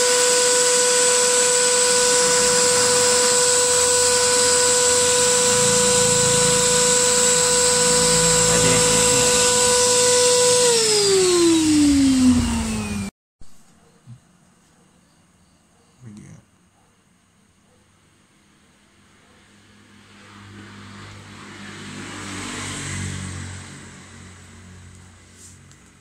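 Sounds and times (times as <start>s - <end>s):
electric air blower whining: 0.0s - 13.1s.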